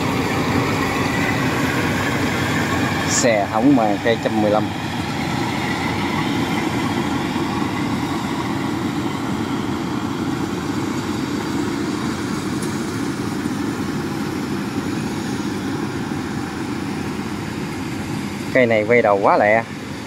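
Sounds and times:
combine harvester machinery drone: 0.0s - 20.0s.

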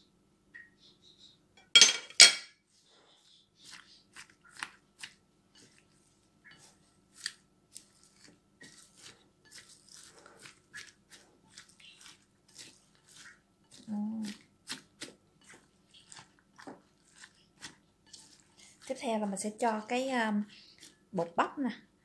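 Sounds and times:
spatula scraping a spoon: 2.2s - 21.0s
vegetables tossed in bowl: 6.5s - 21.4s.

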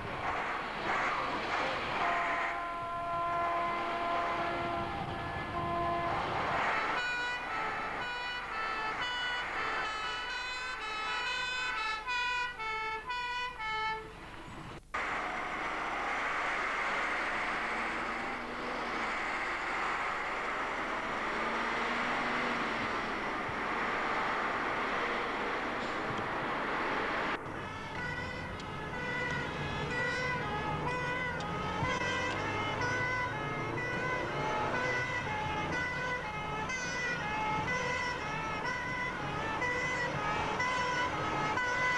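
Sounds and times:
fire engine and road noise: 0.0s - 41.9s
fire engine two-tone horns: 1.7s - 14.2s, 27.4s - 41.9s.

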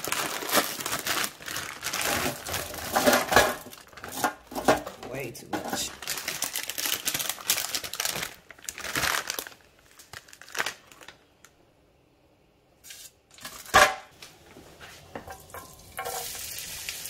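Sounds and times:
plastic bag crinkling: 0.0s - 11.5s
frying sizzle in a pan: 15.2s - 17.0s.

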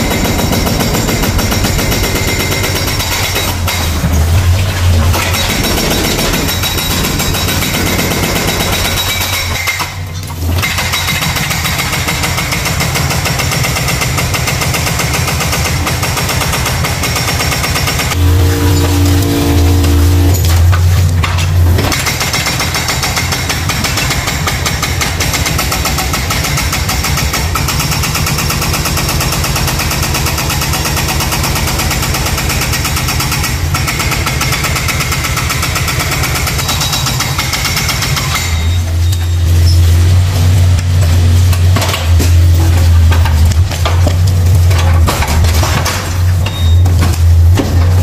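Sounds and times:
diesel engine under load: 0.0s - 11.7s, 17.8s - 26.8s, 27.4s - 48.0s
hydraulic crusher rattling: 0.0s - 11.9s, 18.0s - 27.6s
deep steady engine hum: 18.0s - 21.9s.

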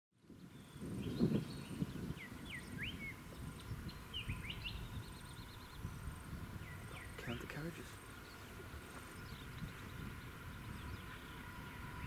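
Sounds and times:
birds chirping and whistling: 0.2s - 12.0s
bird trill: 0.4s - 12.0s.

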